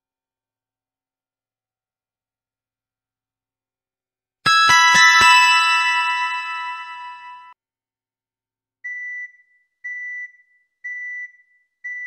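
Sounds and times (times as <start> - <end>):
bell-like chime ringtone: 4.5 - 7.6
high beep ringtone: 4.5 - 7.6.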